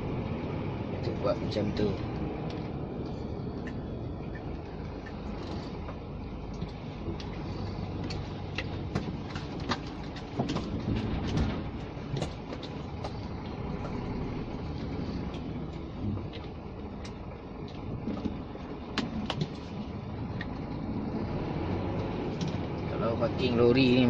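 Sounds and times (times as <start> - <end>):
truck engine running: 0.0 - 24.0
light knocks and rattles: 3.6 - 14.1.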